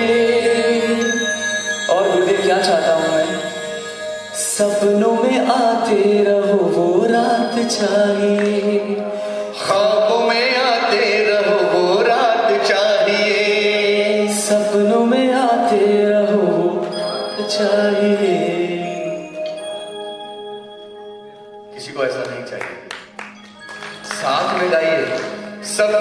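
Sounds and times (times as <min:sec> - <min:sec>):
person singing: 0:00.0 - 0:19.6
held instrumental accompaniment: 0:00.0 - 0:26.0.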